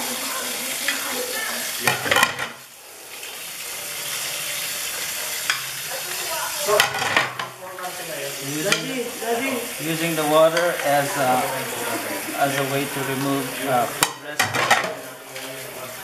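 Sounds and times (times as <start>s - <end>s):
plates clattering: 0.9s - 2.6s, 6.6s - 7.6s, 8.5s - 9.2s, 9.8s - 15.6s.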